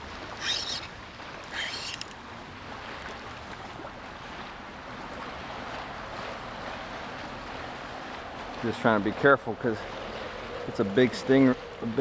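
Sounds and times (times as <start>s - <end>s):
river water sloshing around legs: 0.0s - 12.0s.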